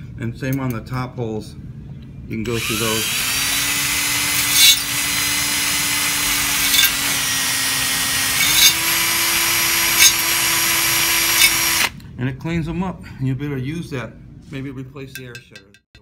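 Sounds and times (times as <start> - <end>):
drill bit scraping in holes: 2.5 - 12.0
electric drill whining: 2.5 - 12.0.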